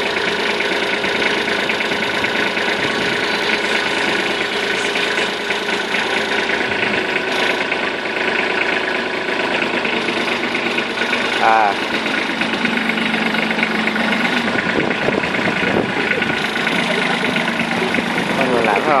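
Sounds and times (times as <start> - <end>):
tractor diesel engine clattering: 0.0 - 19.0.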